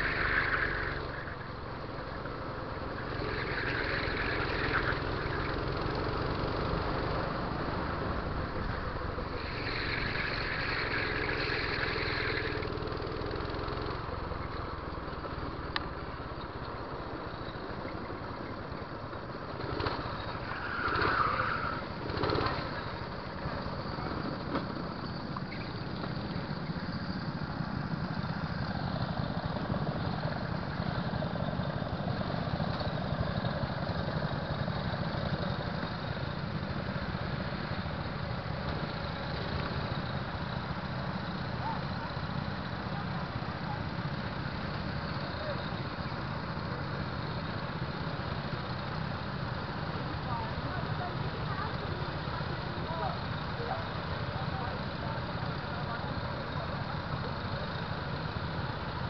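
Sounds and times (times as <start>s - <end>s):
go-kart engines idling: 0.0s - 59.0s.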